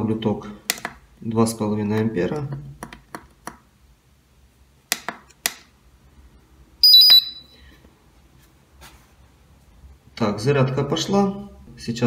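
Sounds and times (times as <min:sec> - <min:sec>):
high-pitched stuttering beep: 0:06.8 - 0:07.5.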